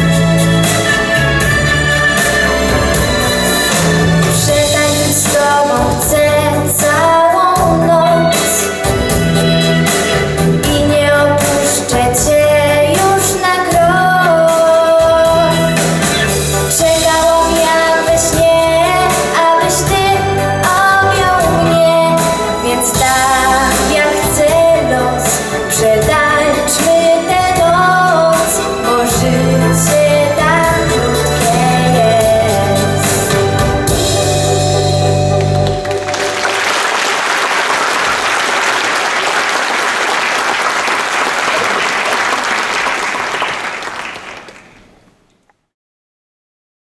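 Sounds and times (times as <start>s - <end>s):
instrumental accompaniment: 0.0s - 45.0s
woman singing a ballad: 4.4s - 8.7s, 10.6s - 15.8s, 16.7s - 33.6s
audience applause: 35.4s - 45.0s.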